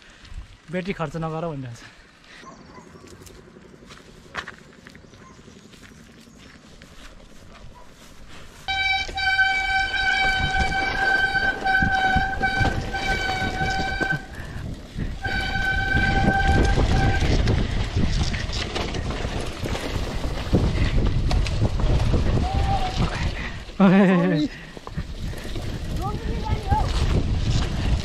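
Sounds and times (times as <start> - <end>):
wind: 0.0 - 28.0
tyres rumbling over rough ground: 0.5 - 28.0
bike brakes squealing: 8.7 - 17.6.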